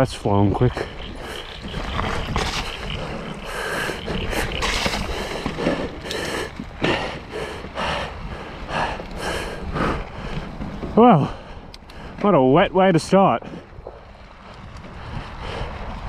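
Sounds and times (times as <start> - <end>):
bike tyres on wet trail: 0.0 - 16.0
splashing and rattling: 0.4 - 7.6.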